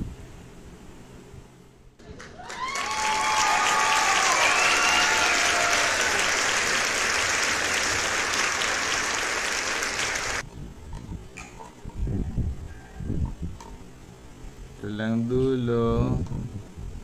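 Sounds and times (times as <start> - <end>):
loud applause: 2.0 - 10.4.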